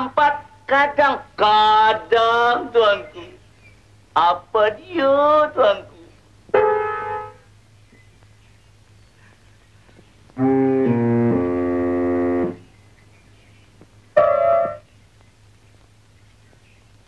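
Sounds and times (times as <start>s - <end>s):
orchestral film score chords: 10.4s - 12.6s.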